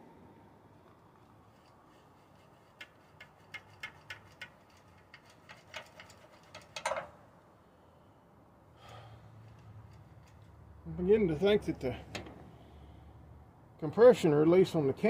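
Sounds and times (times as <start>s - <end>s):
light clicks of engine controls: 11.7s - 12.5s.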